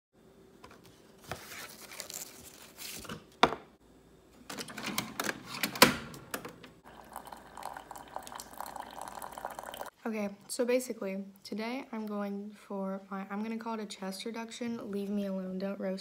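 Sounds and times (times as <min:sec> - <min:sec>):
paper rustling and crinkling: 0:00.6 - 0:03.4
coffee brewer humming: 0:06.3 - 0:10.0.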